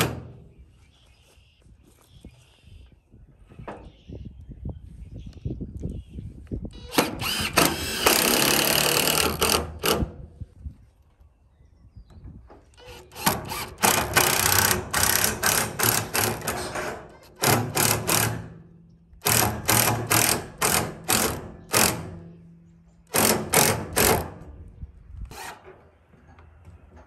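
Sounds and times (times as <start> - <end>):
impact driver hammering screws: 6.8 - 10.2, 12.8 - 22.3, 23.1 - 24.4, 25.3 - 25.7.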